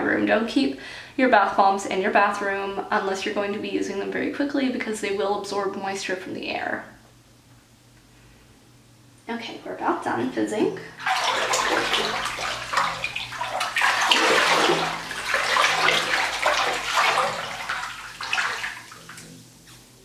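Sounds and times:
hand splashing in bathtub water: 11.0 - 19.4.

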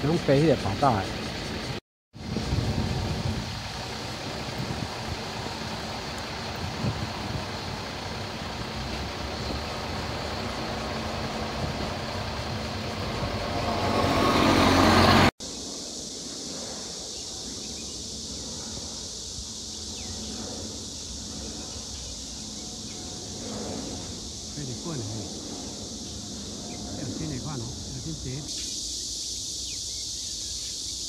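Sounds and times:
vehicle engine: 0.0 - 15.4
high hiss: 0.0 - 31.0.

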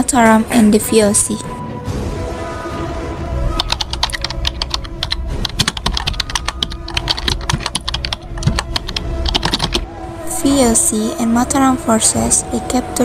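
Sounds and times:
computer keyboard typing: 3.6 - 9.8.

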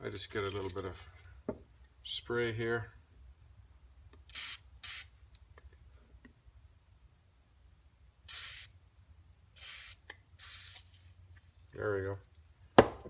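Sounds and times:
aerosol spray hissing: 8.3 - 8.8, 9.6 - 10.9.

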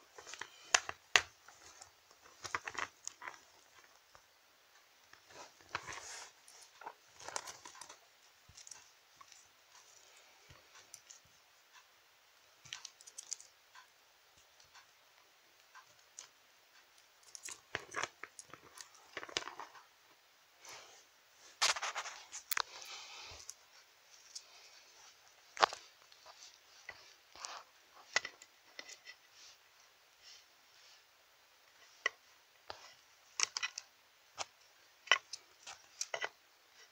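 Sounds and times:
plastic toy figures handled: 0.1 - 4.2, 5.1 - 10.0, 12.6 - 13.5, 17.2 - 19.8, 21.6 - 24.5, 25.3 - 29.4, 31.7 - 36.9.

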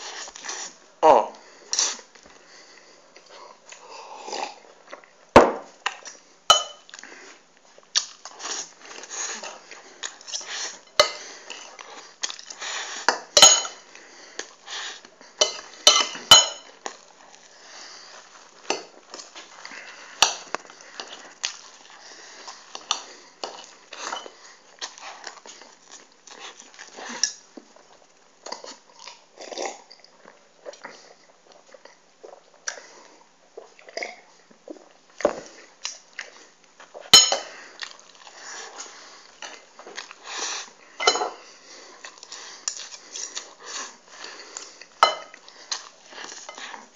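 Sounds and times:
chewing: 5.8 - 46.9
cutlery clinking on a plate: 6.5 - 6.9, 13.4 - 13.8, 15.4 - 16.7, 37.1 - 37.5, 41.0 - 41.4.

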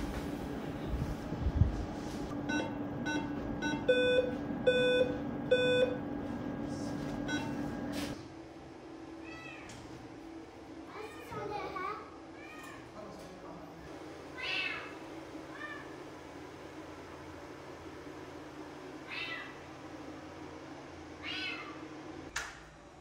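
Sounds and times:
patient monitor beeping: 2.4 - 6.0, 7.2 - 7.7.

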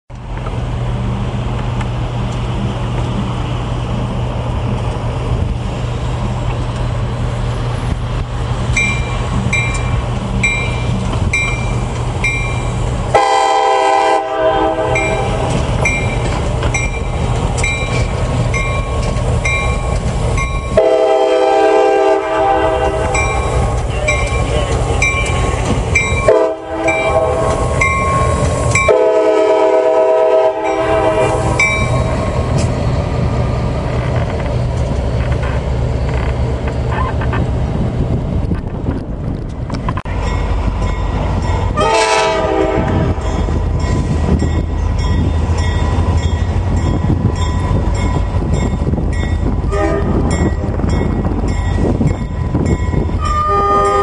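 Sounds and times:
diesel locomotive engine running: 0.1 - 54.0
locomotive horn blasts: 13.1 - 15.6, 20.7 - 23.3, 26.2 - 28.2, 28.8 - 31.5, 41.8 - 43.5, 49.7 - 50.4, 53.2 - 54.0.

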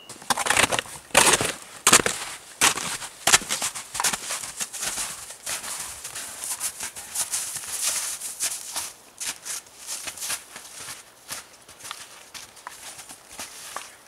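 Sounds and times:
snowshoe footsteps crunching snow: 0.0 - 14.0.

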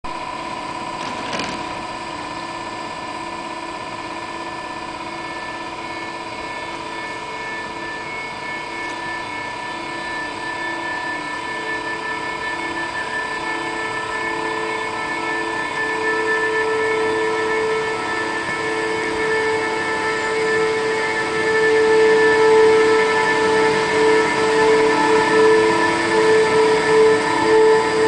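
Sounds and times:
electric train drive whine: 0.1 - 28.0
brief clatter: 1.0 - 1.7
train running rumble: 5.4 - 28.0.

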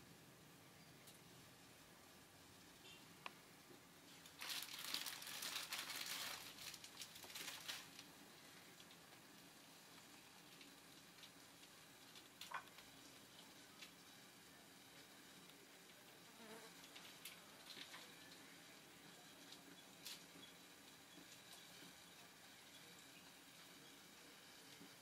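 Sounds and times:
plastic packet crinkling and tearing: 4.1 - 8.1.

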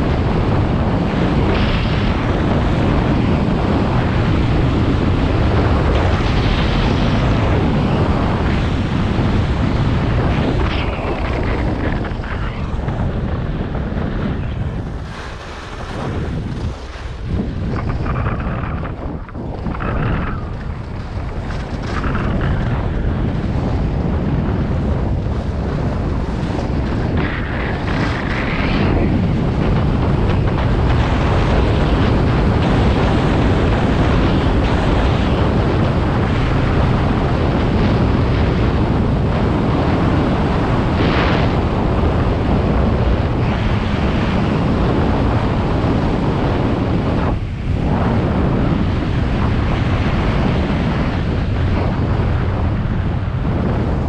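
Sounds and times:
wind rushing over microphone: 0.0 - 54.0
skis scraping on snow: 14.4 - 22.8.

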